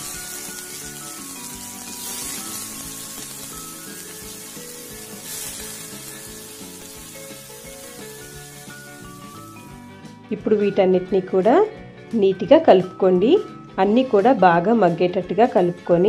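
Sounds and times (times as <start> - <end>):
food sizzling in hot oil: 0.0 - 10.2
soft background music: 0.0 - 16.0.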